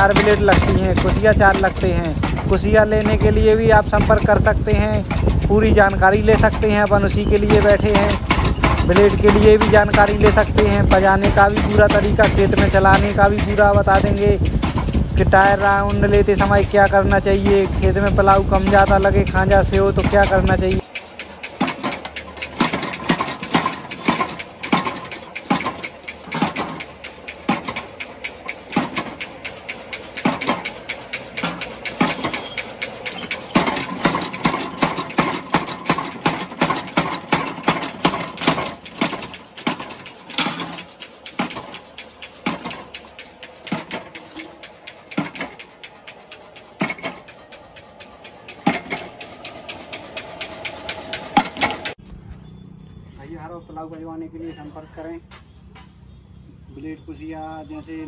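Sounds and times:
power hammer pounding steel: 0.0 - 52.0
hammer motor hum: 0.0 - 53.0.

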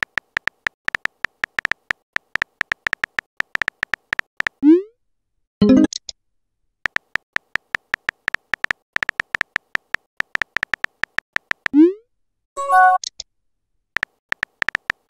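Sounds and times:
phone keyboard key clicks: 0.0 - 4.6, 6.9 - 11.8, 14.0 - 15.0.

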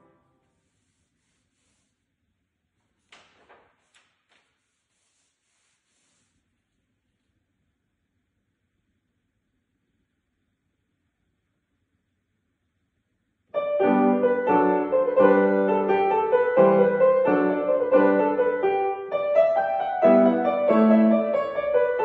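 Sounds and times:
grand piano piece: 13.5 - 22.0.

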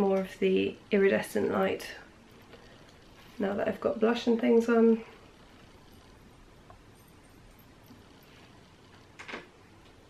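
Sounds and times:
faint soft rustles: 1.8 - 9.2.

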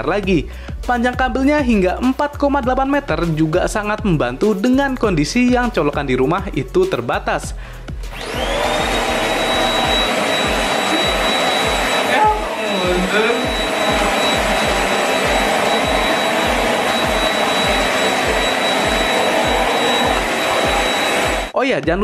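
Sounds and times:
stick vacuum cleaner running: 8.1 - 21.6.

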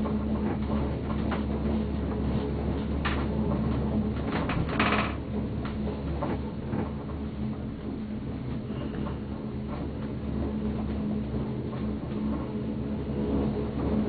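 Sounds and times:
gondola cabin humming: 0.0 - 14.0
clicks and rattles: 3.0 - 6.9.

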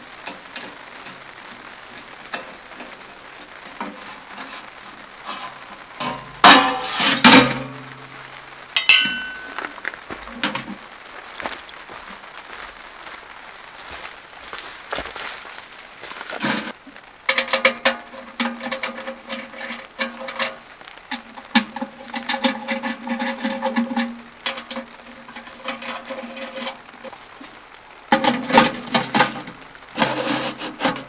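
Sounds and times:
sheet metal clattering rattle: 5.3 - 7.8, 8.8 - 9.6, 17.3 - 27.2, 28.1 - 31.0
sharp ringing metal clink: 8.8 - 9.5.

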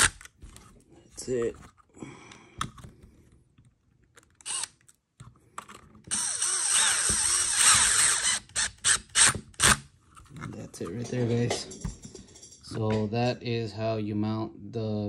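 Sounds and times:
screws grinding and scraping: 4.0 - 12.7.

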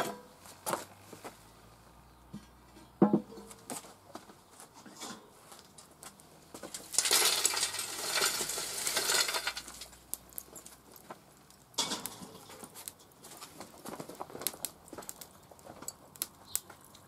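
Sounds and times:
charcoal clattering onto steel: 6.6 - 10.6, 11.7 - 14.6.

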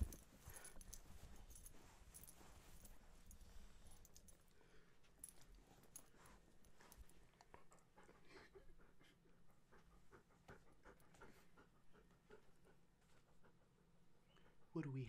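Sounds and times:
light clicks and rustles: 0.0 - 7.9
dog panting: 5.9 - 14.8.

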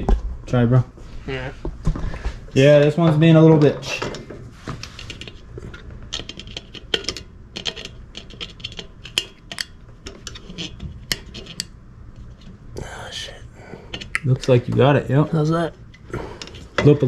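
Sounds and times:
small metallic clicks and scrapes: 4.8 - 12.5.

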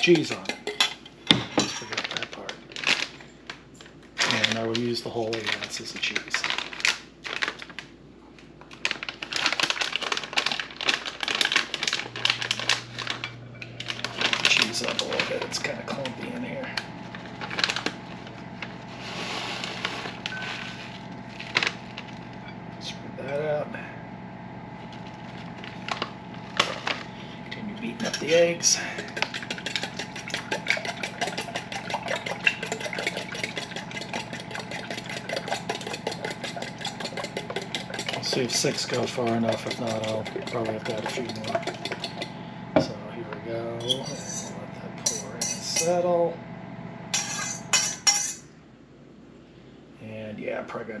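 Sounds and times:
plastic bag crinkling: 1.8 - 22.4, 24.7 - 42.3
eggs beaten in metal bowl: 12.3 - 18.0, 25.6 - 42.4, 43.9 - 46.0.

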